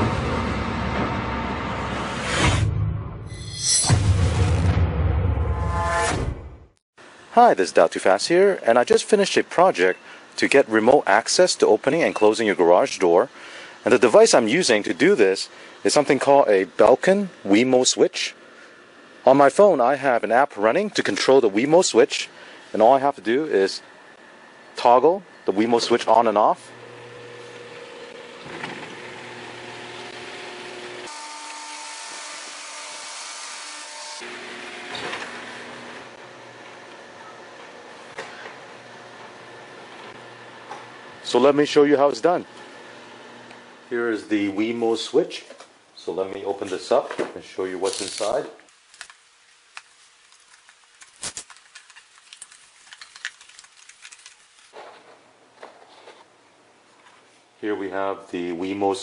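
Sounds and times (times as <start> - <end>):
garage door opener whirring: 26.6 - 41.4, 42.4 - 43.9.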